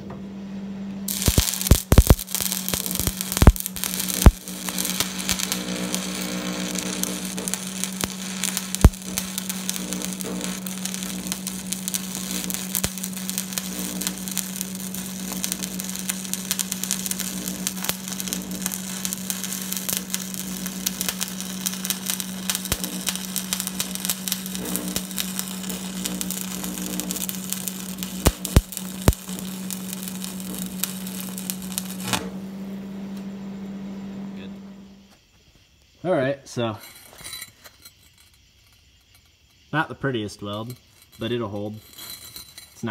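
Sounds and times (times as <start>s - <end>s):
steady low hum: 0.0s - 35.1s
welding arc crackling: 1.1s - 34.5s.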